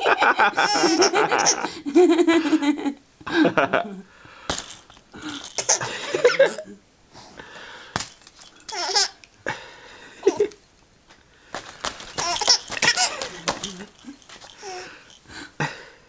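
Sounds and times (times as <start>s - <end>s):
baby laughing and squealing: 0.6s - 1.5s, 5.4s - 5.9s, 8.7s - 9.2s, 12.1s - 14.9s
hanging toys clicking: 11.6s - 15.3s.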